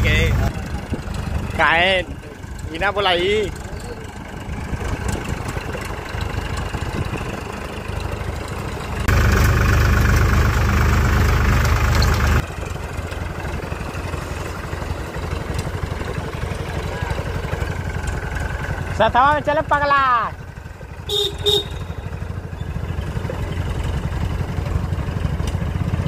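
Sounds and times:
harsh mechanical noise: 0.0 - 18.4
tractor engine running: 0.0 - 26.0.

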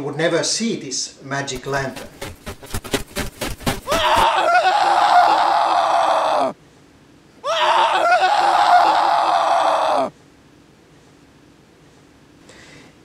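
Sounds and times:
loud wavering screams: 3.9 - 6.6, 7.4 - 10.1.

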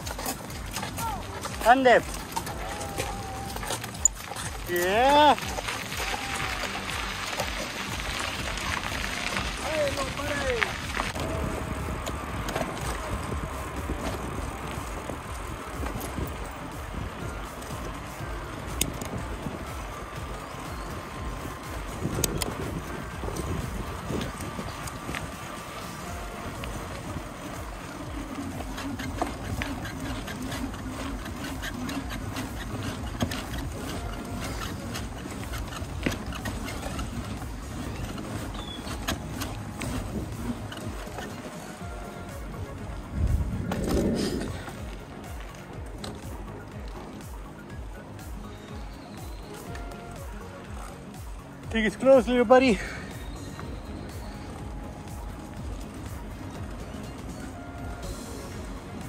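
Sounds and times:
bicycle tyre rolling on gravel: 0.0 - 59.0
bike knocks and rattles: 0.0 - 59.0
wind rumble on microphone: 5.4 - 47.4.

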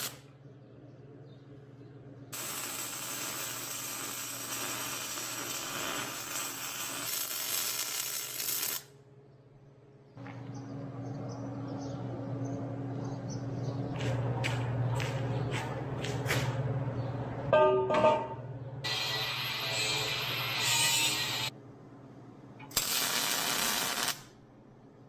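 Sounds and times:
welding arc crackling: 0.0 - 0.2, 2.3 - 8.9, 18.9 - 21.5, 22.7 - 24.3
low steady hum: 8.9 - 18.9.

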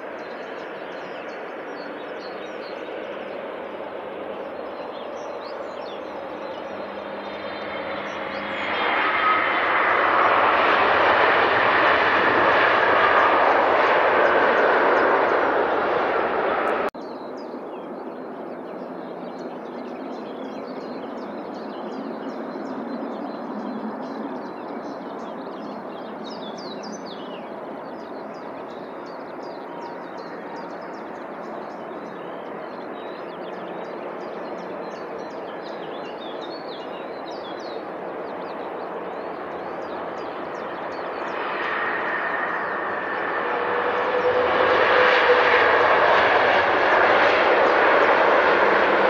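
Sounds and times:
small birds chirping: 0.0 - 9.6
jet airliner engines whining: 0.0 - 49.0.

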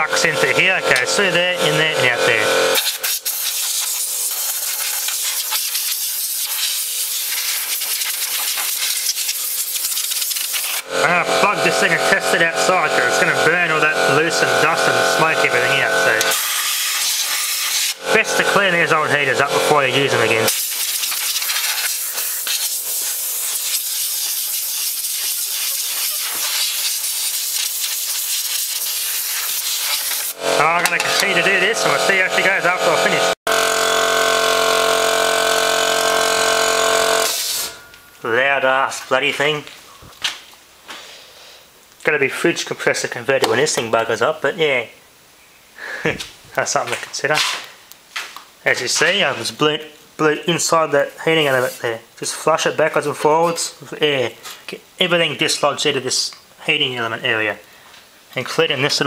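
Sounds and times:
wavering pitched sound: 0.0 - 2.8, 10.8 - 16.4, 30.4 - 33.4
air blow gun hissing: 2.7 - 10.9, 14.9 - 18.0, 20.5 - 32.0, 37.0 - 37.8.

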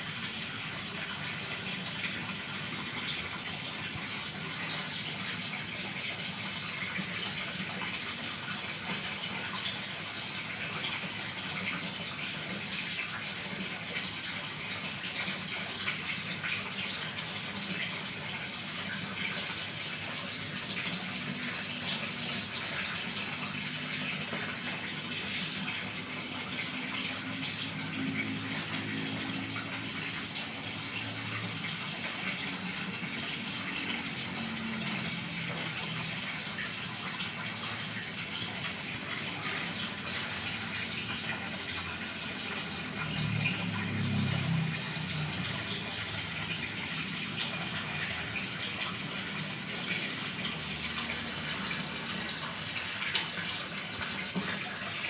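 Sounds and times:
water splashing in fish tank: 0.0 - 55.0.

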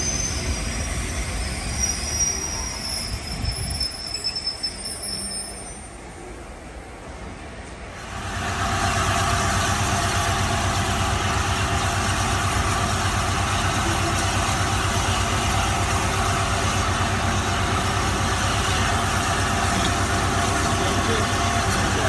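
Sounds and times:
steam hissing: 8.0 - 22.0.

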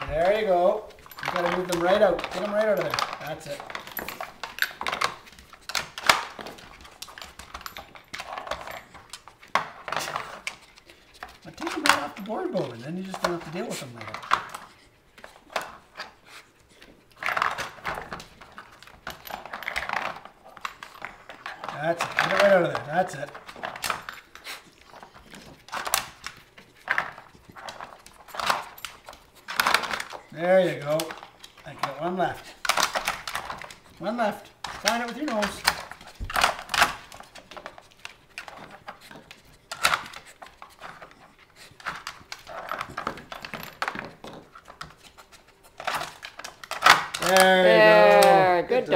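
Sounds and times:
plastic pieces knocking: 0.0 - 10.6, 25.1 - 41.2, 45.7 - 48.4
plastic puzzle clicking and rattling: 0.0 - 15.9, 17.1 - 48.4
dog sniffing and snuffling: 0.3 - 46.7.

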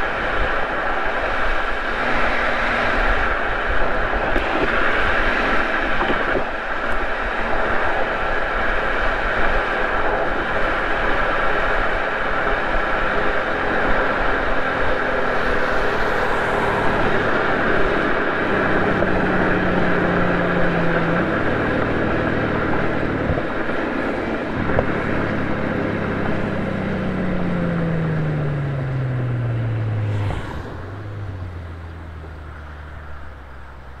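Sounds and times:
road and wind noise: 0.0 - 34.0
car engine from inside cabin: 0.4 - 8.2, 11.1 - 34.0.

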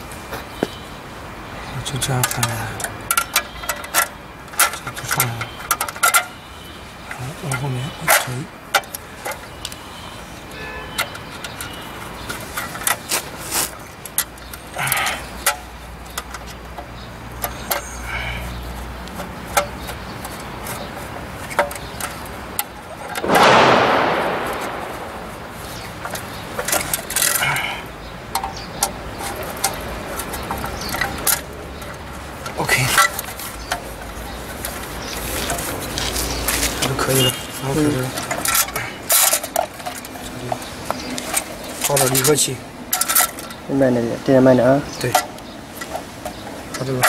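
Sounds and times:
loud rush of noise: 23.2 - 26.2.

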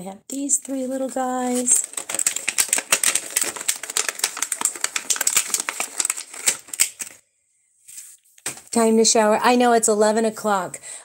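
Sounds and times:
plastic blister packaging crackling: 0.4 - 7.2.

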